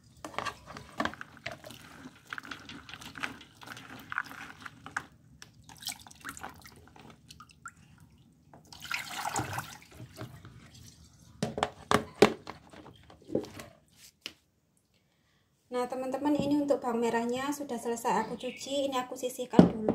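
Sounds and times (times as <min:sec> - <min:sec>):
hands rubbing shallots in water: 0:00.7 - 0:07.8
water splashing onto tiled floor: 0:01.6 - 0:08.1, 0:08.7 - 0:10.3.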